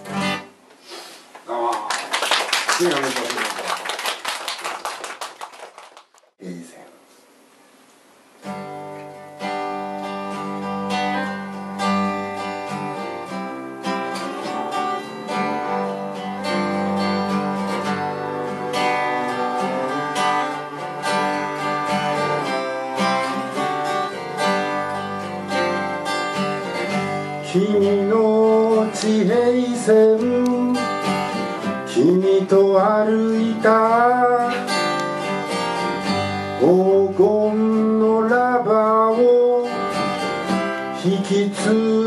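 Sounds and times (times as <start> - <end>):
acoustic guitar strumming: 0.0 - 0.6, 8.4 - 42.0.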